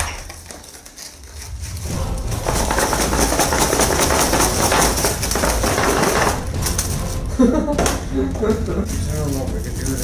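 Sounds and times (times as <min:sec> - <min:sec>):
foil wrappers crinkling: 0:00.0 - 0:10.0.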